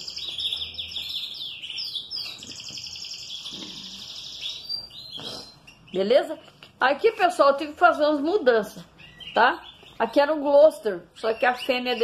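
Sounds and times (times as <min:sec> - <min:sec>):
canary singing trills: 0:00.0 - 0:12.0.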